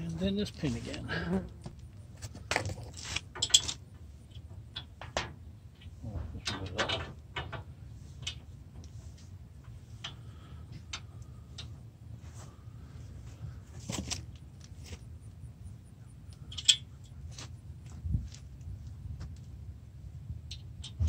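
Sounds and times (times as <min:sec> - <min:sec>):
steel hardware clinking and scraping: 0:02.2 - 0:11.7, 0:16.3 - 0:17.6.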